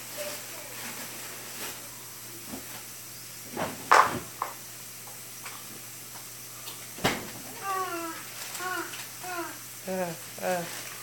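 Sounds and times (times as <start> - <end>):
faint steady hum: 0.0 - 11.0
kitchen items knocking and clattering: 3.5 - 4.6.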